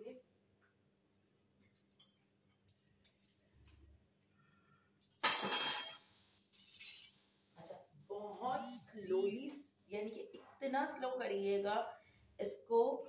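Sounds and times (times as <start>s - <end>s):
kitchenware clink: 5.2s - 7.2s.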